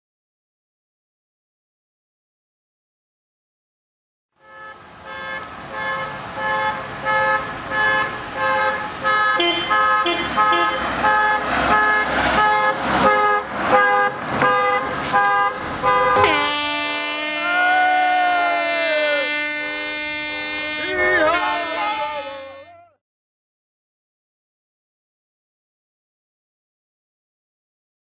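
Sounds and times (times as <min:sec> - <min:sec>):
multi-tone car horn: 0:04.4 - 0:23.0.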